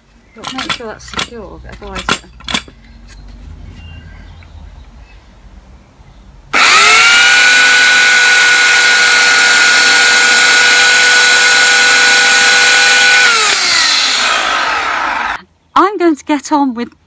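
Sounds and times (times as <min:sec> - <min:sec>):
electric chainsaw motor whining: 0:06.5 - 0:15.4.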